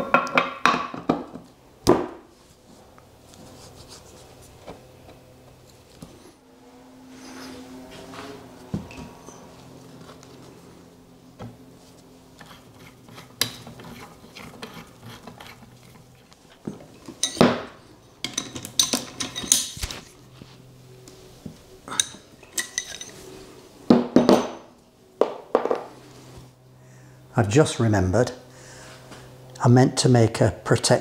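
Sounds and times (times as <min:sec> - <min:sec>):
metal tools clinking on metal: 0:17.0 - 0:17.5, 0:18.2 - 0:19.8, 0:21.9 - 0:23.2.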